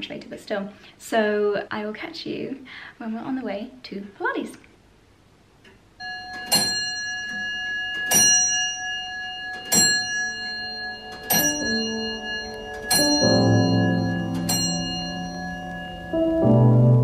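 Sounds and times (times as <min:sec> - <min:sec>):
clock bell striking: 0:06.0 - 0:17.0
piano music: 0:09.1 - 0:17.0.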